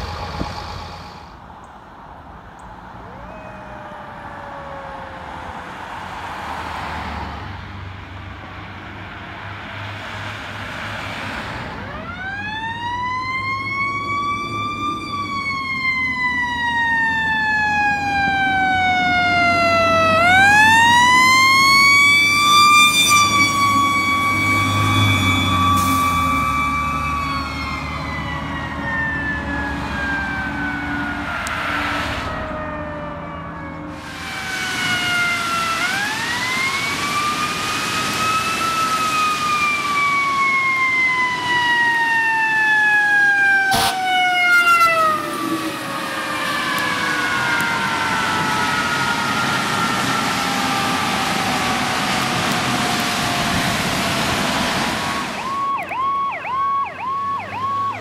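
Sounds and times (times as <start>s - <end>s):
truck engine running: 0.0s - 1.4s
fire engine siren wailing: 0.0s - 1.6s, 2.3s - 58.0s
passing traffic: 0.0s - 58.0s.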